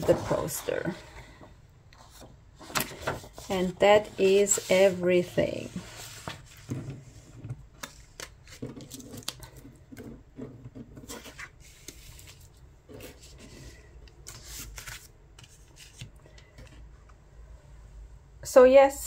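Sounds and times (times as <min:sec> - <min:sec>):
paper sliding on wooden table: 0:04.1 - 0:07.2.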